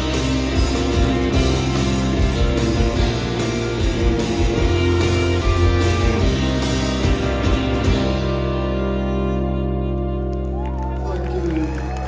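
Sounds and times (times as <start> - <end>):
drum kit: 0.0 - 9.4
bass guitar: 0.0 - 12.0
electric guitars: 0.0 - 12.0.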